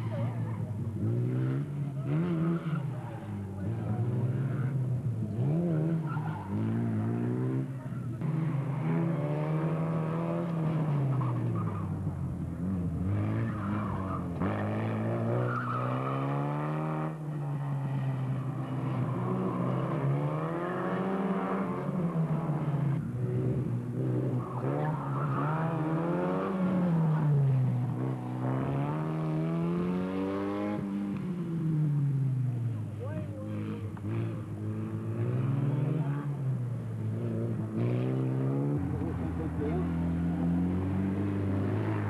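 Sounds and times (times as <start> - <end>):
race car engine revving: 0.7 - 31.7.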